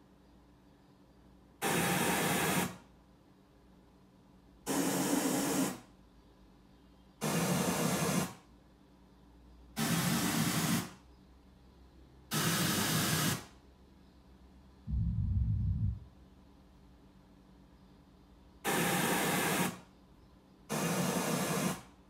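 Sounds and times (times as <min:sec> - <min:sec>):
hiss-like test noise bursts: 0:01.6 - 0:02.9, 0:04.6 - 0:05.9, 0:07.2 - 0:08.5, 0:09.7 - 0:11.1, 0:12.3 - 0:13.6, 0:18.6 - 0:19.9, 0:20.7 - 0:22.0.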